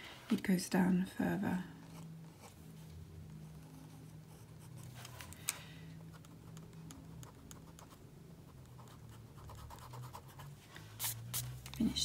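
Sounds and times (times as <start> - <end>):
steady low hum: 0.0 - 12.0
pen scratching on paper: 6.1 - 11.5.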